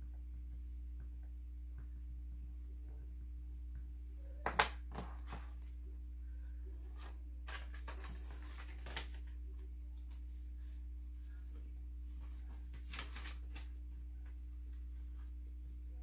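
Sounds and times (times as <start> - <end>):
low hum: 0.0 - 16.0
banknotes rustling: 6.7 - 15.4.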